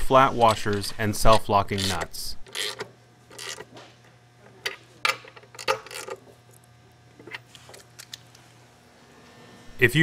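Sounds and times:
ratchet wrench clicking: 0:00.5 - 0:03.7.

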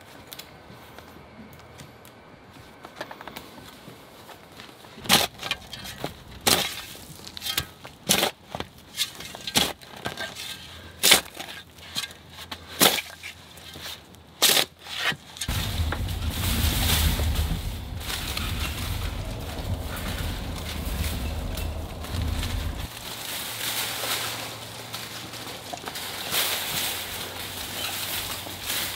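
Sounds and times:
shovel scraping into soil: 0:05.0 - 0:15.5
steady low rumble: 0:15.5 - 0:23.9.

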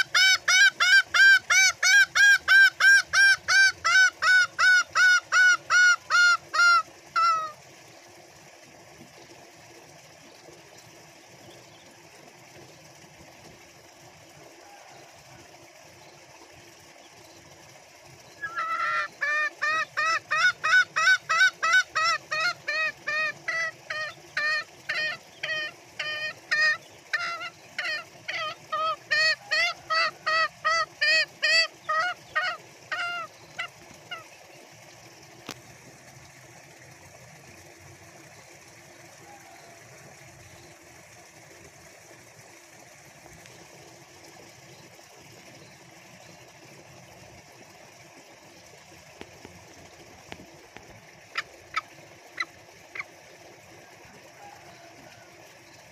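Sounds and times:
junglefowl cackling call: 0:00.0 - 0:07.6, 0:18.4 - 0:34.3.

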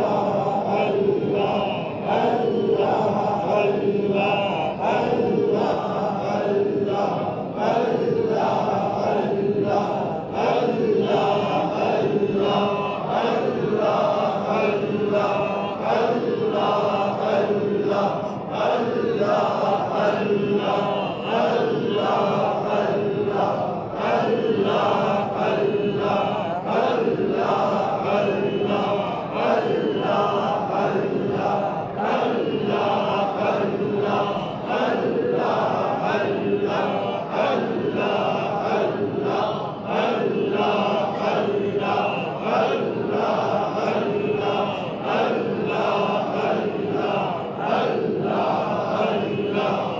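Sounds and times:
men chanting in unison: 0:00.0 - 0:49.9.

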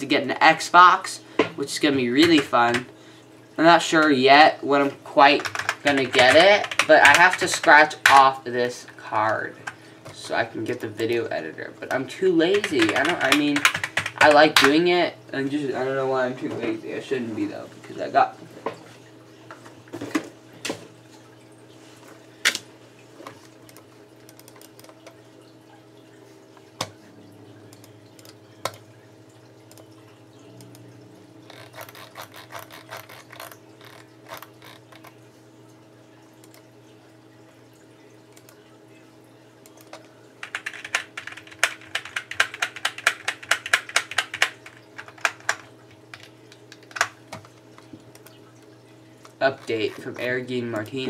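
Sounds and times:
steady low hum: 0:00.0 - 0:51.0
typing on keyboard: 0:05.3 - 0:08.2, 0:12.5 - 0:14.8, 0:31.5 - 0:35.2, 0:39.7 - 0:47.1.

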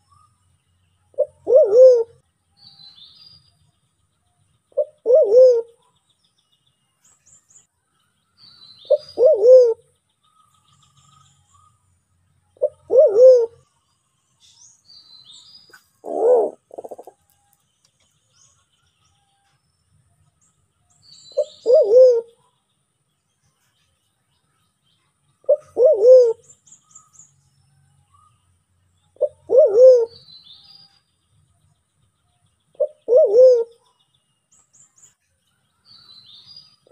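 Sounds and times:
small birds chirping: 0:00.0 - 0:36.9
pigeon low calls: 0:01.2 - 0:02.2, 0:04.8 - 0:05.8, 0:08.9 - 0:09.8, 0:12.6 - 0:13.6, 0:16.0 - 0:17.2, 0:21.4 - 0:22.5, 0:25.5 - 0:26.4, 0:29.2 - 0:30.2, 0:32.8 - 0:33.8.

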